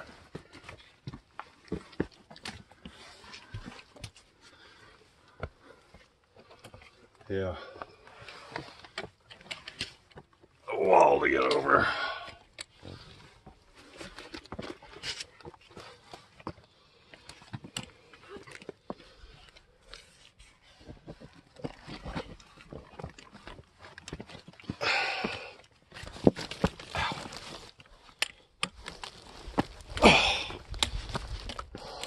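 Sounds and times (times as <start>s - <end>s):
footsteps on rock: 0.0s - 4.2s, 12.8s - 19.4s, 20.4s - 27.8s, 28.7s - 32.0s.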